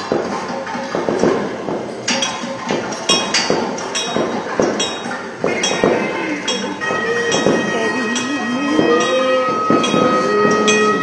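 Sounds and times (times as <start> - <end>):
temple bell ringing: 4.0 - 11.0.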